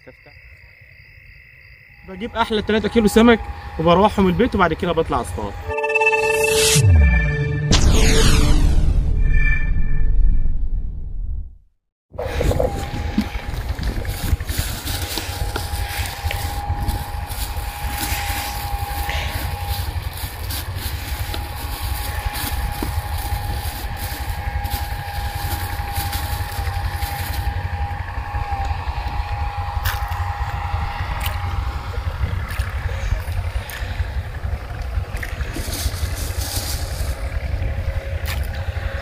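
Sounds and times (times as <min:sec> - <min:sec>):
low rumble: 0:05.4 - 0:39.0
plastic buckets knocking and rustling: 0:12.2 - 0:27.5, 0:35.2 - 0:37.3.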